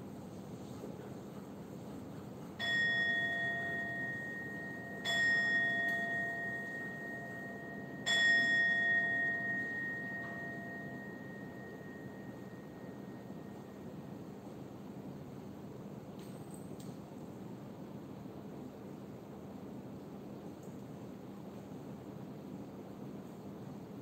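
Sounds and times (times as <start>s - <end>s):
standing bowl bell strokes: 2.0s - 14.2s.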